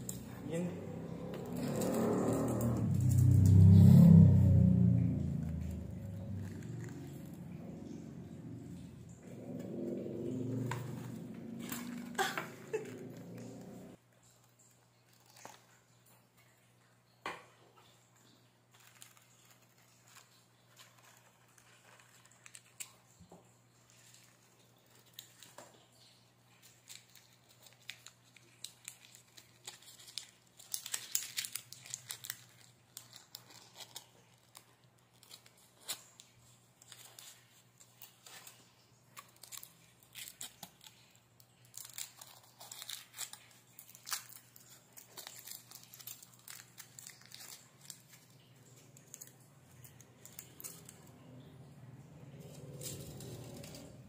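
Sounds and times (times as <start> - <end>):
foil wrapper crinkling: 15.0 - 15.9, 18.2 - 51.5, 52.4 - 54.0.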